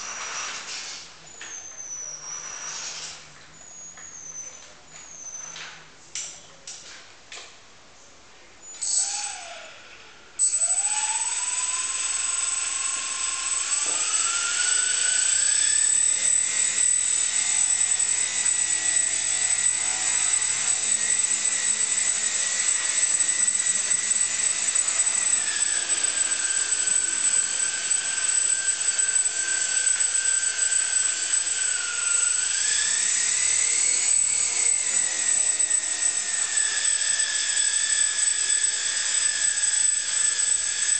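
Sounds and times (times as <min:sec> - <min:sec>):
brushless motor whine: 0:08.8 - 0:40.9.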